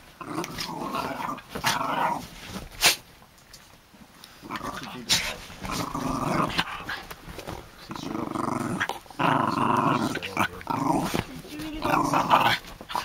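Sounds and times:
small dogs growling: 0.2s - 2.6s, 4.4s - 7.1s, 7.8s - 13.0s.

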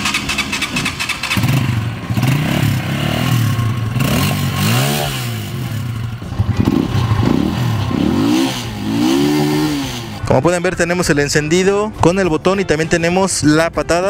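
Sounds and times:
electric starter cranking: 0.0s - 2.4s
motorcycle engine revving: 0.0s - 10.3s.

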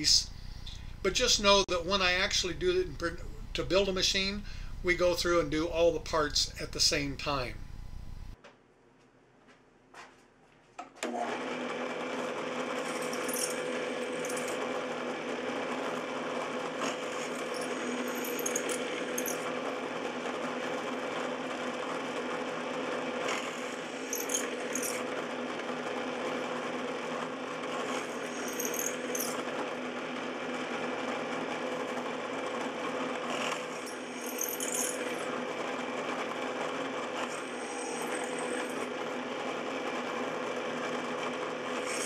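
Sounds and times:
drill press motor hum: 0.0s - 8.4s, 11.0s - 42.0s
high-pitched drill squeaks: 12.8s - 14.6s, 17.0s - 19.5s, 23.3s - 25.0s, 27.8s - 29.4s, 33.3s - 35.2s, 37.2s - 38.8s, 41.8s - 42.0s.

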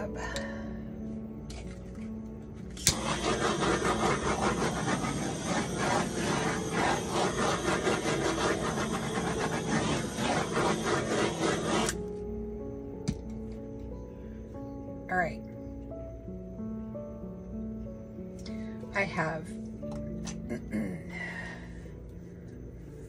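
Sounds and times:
airbrush compressor running: 2.8s - 12.0s.

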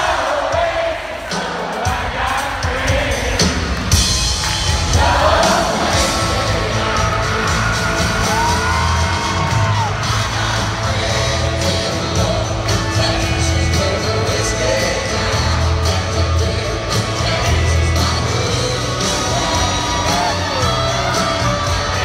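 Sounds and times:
crowd singing along: 0.0s - 22.0s
live country band: 0.0s - 22.0s
crowd whooping: 4.2s - 11.4s, 19.0s - 22.0s.

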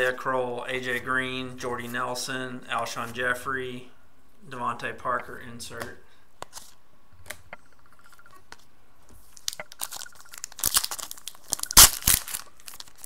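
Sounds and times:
plastic wrapper tearing and crinkling: 9.3s - 13.0s.

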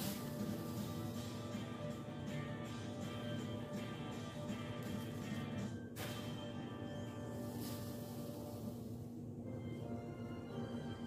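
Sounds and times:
background music with held tones: 0.0s - 11.0s.

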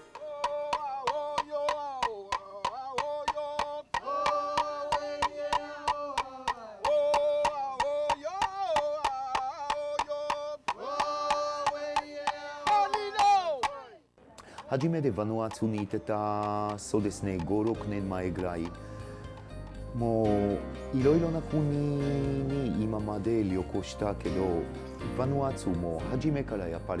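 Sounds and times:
group of voices chanting: 0.1s - 8.5s, 10.7s - 14.0s.

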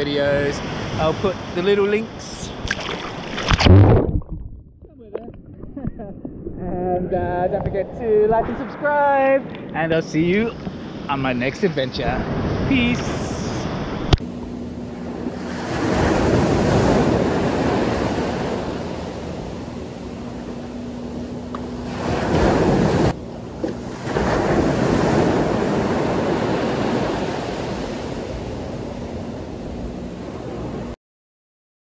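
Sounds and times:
wind on microphone: 2.4s - 11.1s
small waves breaking on beach: 14.9s - 30.9s.

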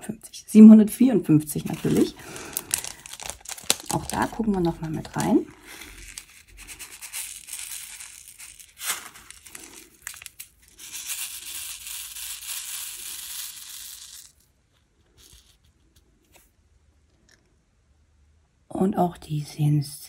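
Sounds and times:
beads rattling into plastic tray: 1.6s - 15.6s
plastic bag crinkling: 1.6s - 16.0s.

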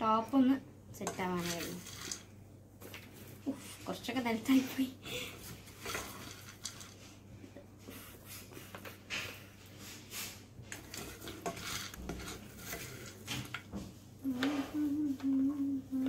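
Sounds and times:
plastic spoon scraping a saucepan: 1.1s - 2.3s, 5.4s - 7.0s, 10.2s - 13.7s
popcorn rustling into paper cup: 1.3s - 4.0s, 5.4s - 7.2s, 10.7s - 13.7s.

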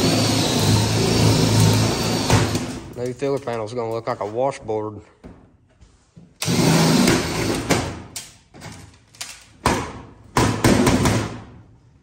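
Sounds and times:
cordless drill drilling metal: 0.0s - 2.9s, 6.4s - 7.7s.

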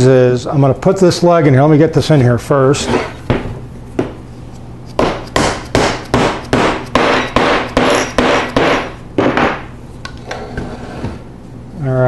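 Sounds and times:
mallet knocking wood: 5.0s - 9.7s.

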